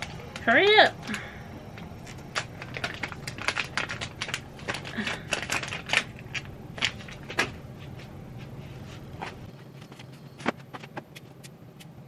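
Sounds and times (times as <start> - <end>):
steady low hum: 0.0 - 12.0
packaging crinkling and rustling: 1.1 - 10.6.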